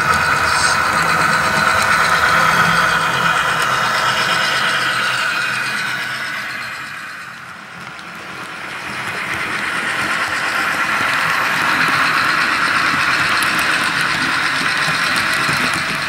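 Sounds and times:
model train diesel engine sound: 0.0 - 16.0
model train running on track: 0.0 - 16.0.

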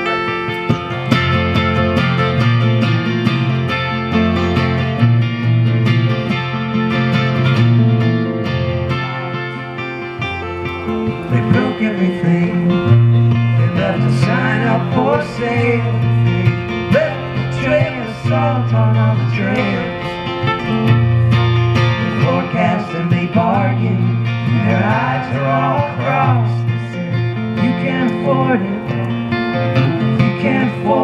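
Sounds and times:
acoustic guitar: 0.0 - 31.0
electric guitar: 0.0 - 31.0
person singing: 10.7 - 20.5, 22.1 - 31.0.

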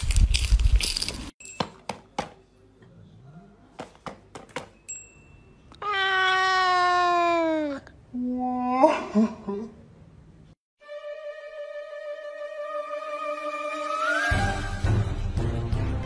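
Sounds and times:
cat meowing: 5.7 - 7.9.

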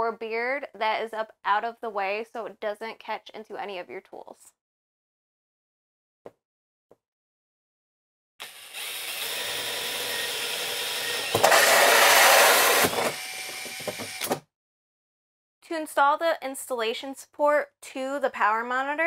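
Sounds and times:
drill with hole saw cutting wood: 8.4 - 14.4.

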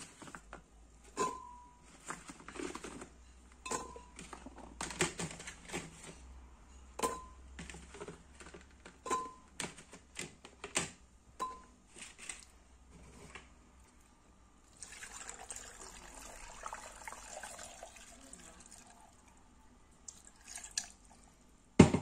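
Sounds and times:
glass ringing clink: 3.7 - 4.1, 7.0 - 7.4, 11.4 - 11.7.

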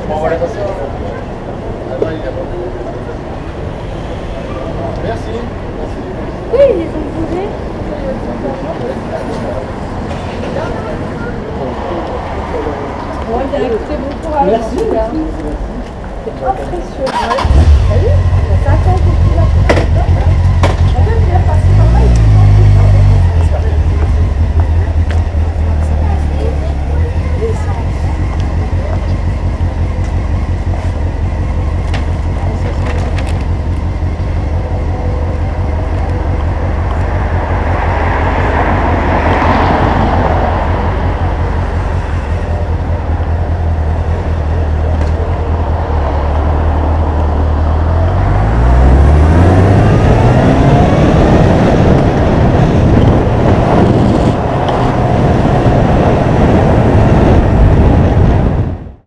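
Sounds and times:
road noise: 0.0 - 59.0
motorcycle engine running: 17.1 - 39.1, 39.8 - 59.0.

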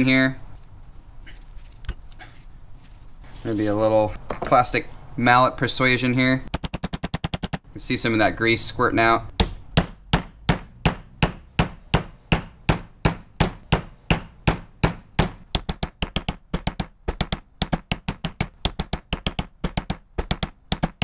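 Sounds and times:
plastic mallet tapping: 6.5 - 7.7, 14.8 - 21.0.

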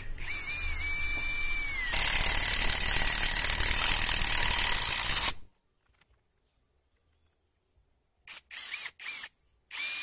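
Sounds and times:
impact wrench motor whine: 0.0 - 5.4, 8.3 - 10.0.

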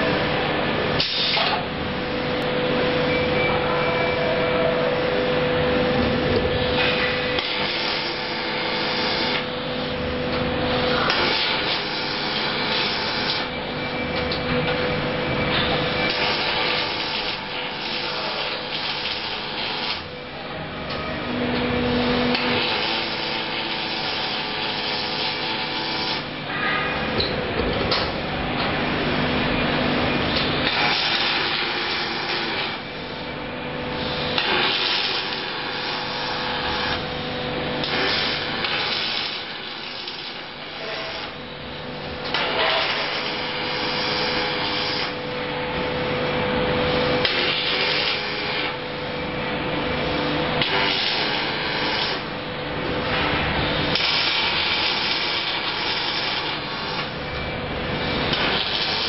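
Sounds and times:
machine hum: 0.0 - 59.0
welding arc crackling and hissing: 6.0 - 13.5, 15.0 - 20.1, 21.8 - 26.6, 28.6 - 41.4, 42.0 - 45.3, 47.1 - 49.0, 49.8 - 59.0.

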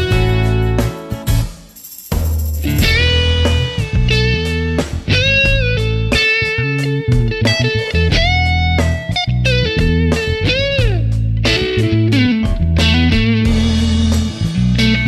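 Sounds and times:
guitar-like lead melody: 0.0 - 1.7, 2.6 - 15.0
steady bass line: 0.0 - 15.0.

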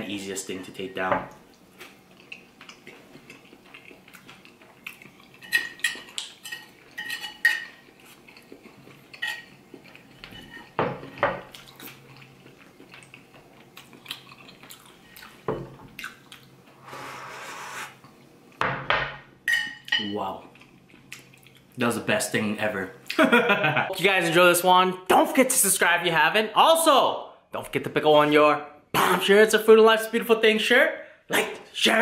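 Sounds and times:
soup slurping: 16.8 - 18.0.

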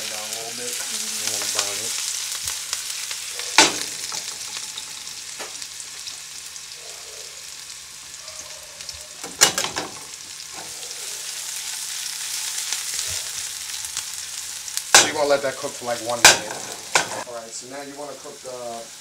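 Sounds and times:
vegetables sizzling in oil: 0.0 - 19.0.

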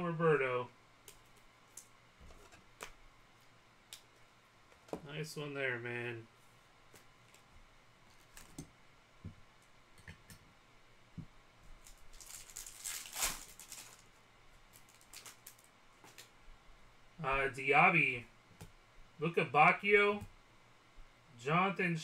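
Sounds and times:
foil card pack tearing: 12.2 - 14.0.

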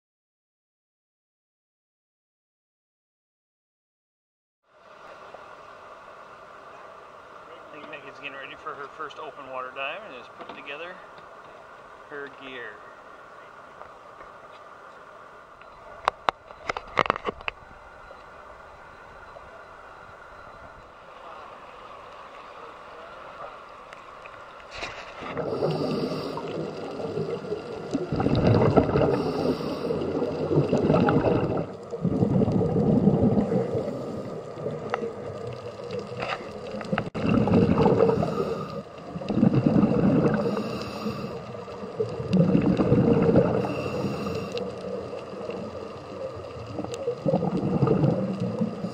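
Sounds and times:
regulator breathing: 24.8 - 27.9, 29.1 - 30.6, 33.4 - 35.0, 37.9 - 42.0, 43.3 - 45.1
bubbles gurgling: 25.0 - 48.9.

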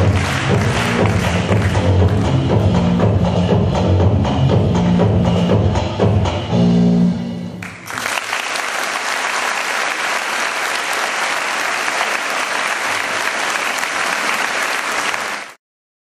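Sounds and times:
audience applauding: 0.0 - 2.3, 7.6 - 15.6
music with steady beat: 0.0 - 7.6.

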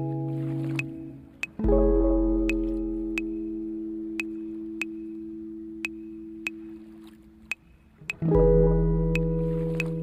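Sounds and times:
sustained music chord ringing: 0.0 - 7.5, 8.2 - 10.0
sharp light ticks: 0.7 - 1.6, 2.4 - 3.5, 4.1 - 5.2, 5.8 - 8.4, 9.1 - 10.0.

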